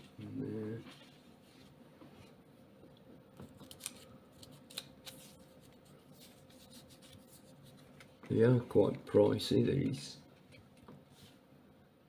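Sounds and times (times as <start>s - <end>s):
paper banknotes rustling: 3.6s - 8.9s.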